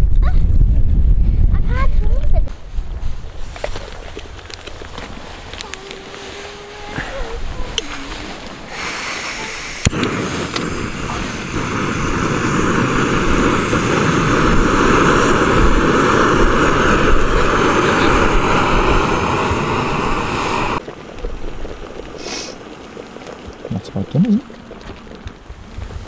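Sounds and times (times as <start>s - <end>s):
gas stove burner hissing: 8.7s - 20.8s.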